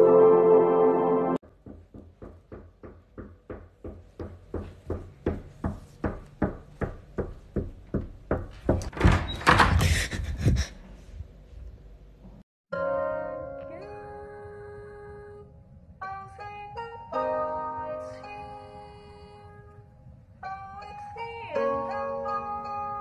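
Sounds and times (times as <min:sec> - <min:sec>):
steady knocks: 0:01.4 - 0:10.1.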